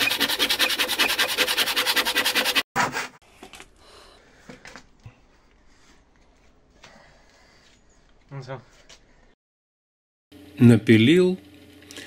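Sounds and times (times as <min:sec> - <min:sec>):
hand saw cutting wood: 0:00.0 - 0:03.1.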